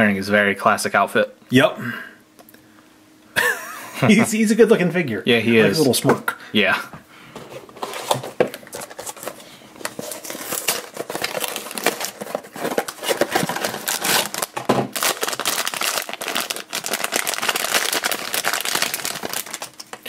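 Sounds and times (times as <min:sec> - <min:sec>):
foil wrapper crinkling: 0:07.8 - 0:20.0.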